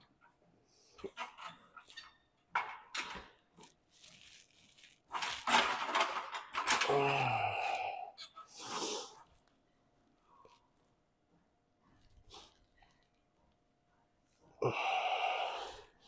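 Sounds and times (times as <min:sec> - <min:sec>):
man grunting: 0:06.8 - 0:08.2
man exhaling hard: 0:06.9 - 0:09.1, 0:14.6 - 0:15.9.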